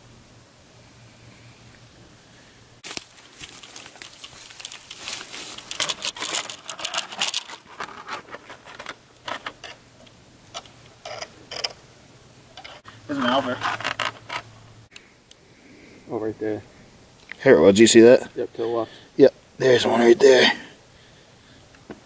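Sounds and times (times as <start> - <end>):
dry grass rustling: 2.3 - 10.0.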